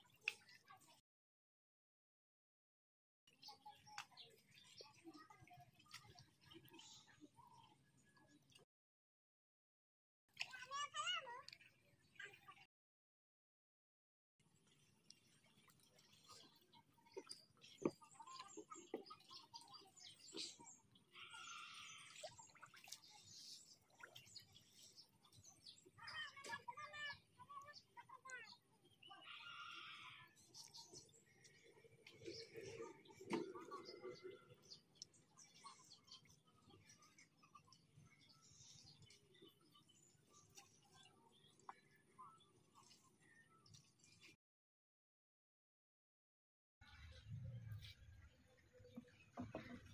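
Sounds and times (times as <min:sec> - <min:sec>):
small birds chirping: 0:03.3 - 0:08.6, 0:14.5 - 0:44.4.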